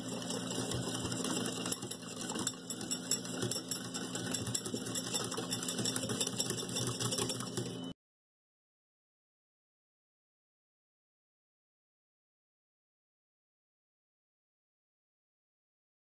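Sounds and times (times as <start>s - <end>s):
wire whisk clicking against glass bowl: 0.0s - 7.8s.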